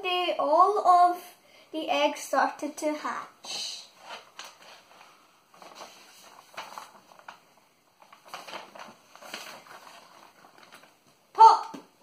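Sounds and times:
paper pages rustling: 3.4 - 11.3.

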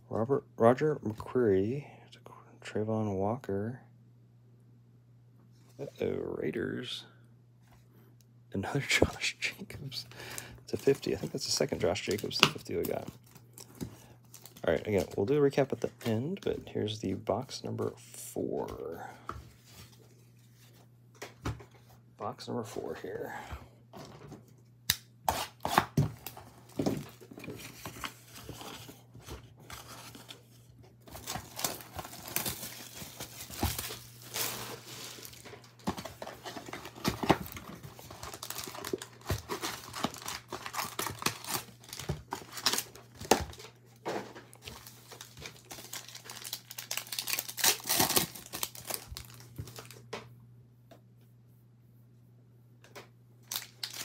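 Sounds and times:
foil packs crinkling: 29.6 - 43.8, 44.4 - 50.0, 53.5 - 54.0
plastic shrink-wrap tearing: 38.1 - 43.0, 44.7 - 50.0, 53.5 - 54.0.

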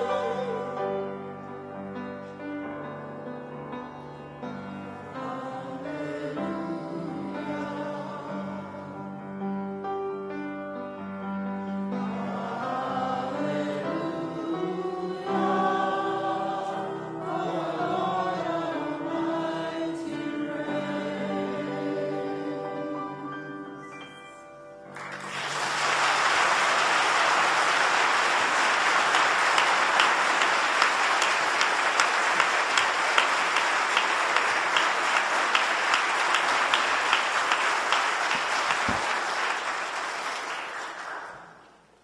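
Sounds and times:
choir holding a chord: 0.0 - 2.1, 4.8 - 9.6, 11.7 - 24.1
audience applause: 24.9 - 41.8.

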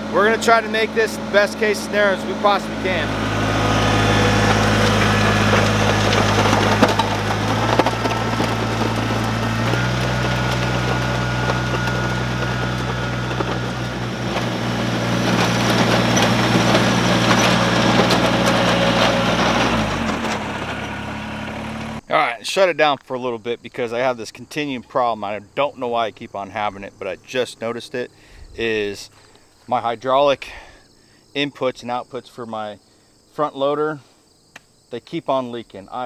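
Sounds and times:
gravel crunching: 0.0 - 22.1, 26.2 - 30.7
tractor diesel engine running: 0.0 - 22.1.

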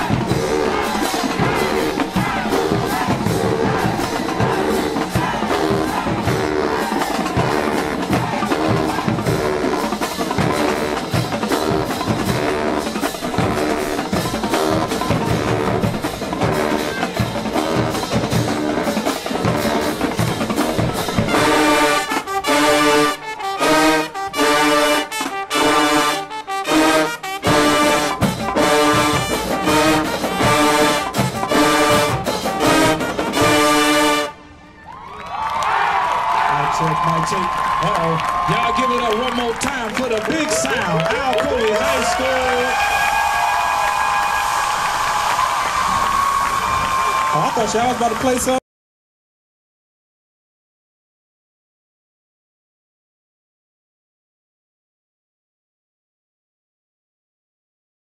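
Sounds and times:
marching band playing: 0.0 - 34.6, 36.7 - 48.6
punched brass chords: 0.0 - 34.6.

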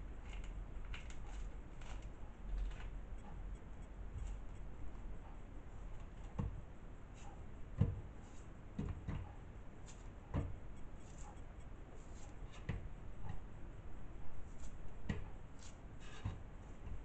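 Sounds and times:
fruit peel tearing and rustling: 0.2 - 3.0.

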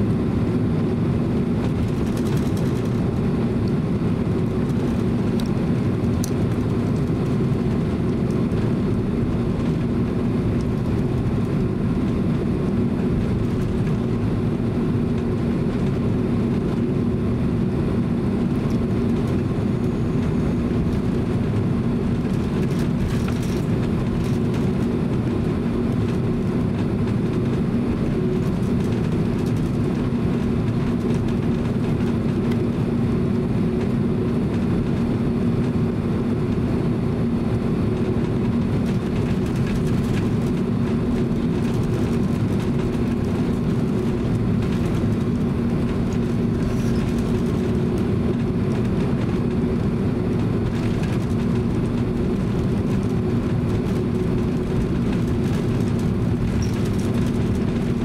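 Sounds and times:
aircraft engine drone: 0.0 - 58.0.

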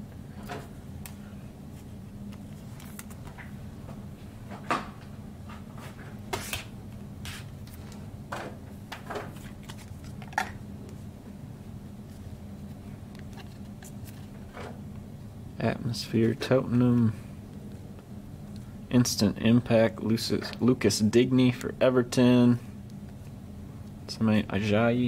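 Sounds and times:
steady low hum: 0.0 - 25.0
cards tapping and rustling: 7.3 - 10.6.

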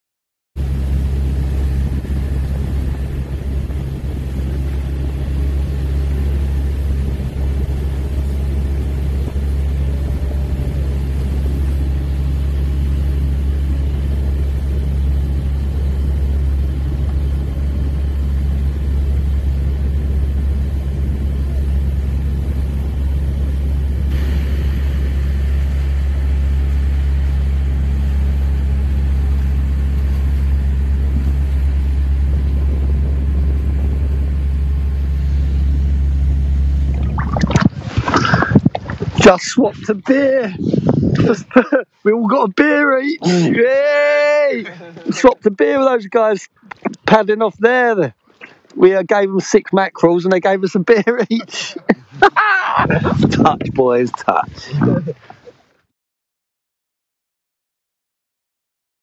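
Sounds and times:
outboard motor drone: 0.6 - 41.8, 51.0 - 55.2
wind: 0.6 - 55.9
rushing water: 36.7 - 39.4.

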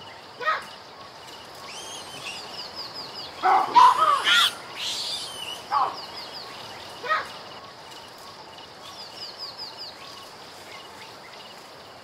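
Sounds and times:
steady high hiss: 0.0 - 12.0
animal chirping calls: 1.6 - 6.1
loud gliding calls: 1.6 - 6.1.

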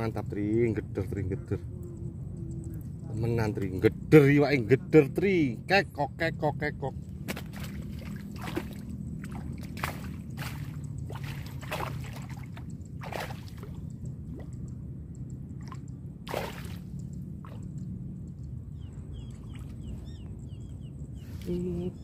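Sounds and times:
steady low hum: 0.0 - 22.0
soft water splashes: 7.1 - 14.8, 15.4 - 18.0, 19.1 - 20.2.

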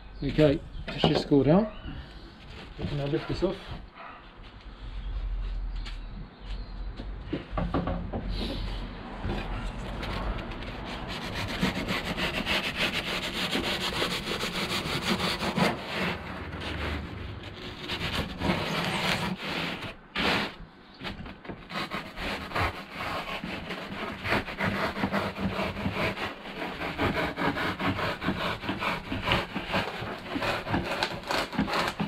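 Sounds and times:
knife sawing through foam: 2.8 - 3.8, 9.4 - 20.6, 21.6 - 32.0.

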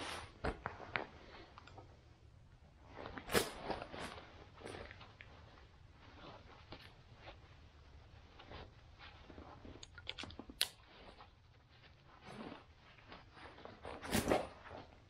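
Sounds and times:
backpack straps rustling and scraping: 12.1 - 14.9.

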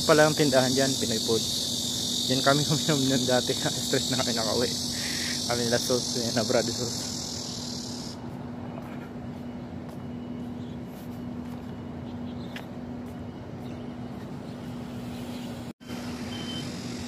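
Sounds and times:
high insect buzz: 0.0 - 8.2
road traffic noise: 0.0 - 17.0.

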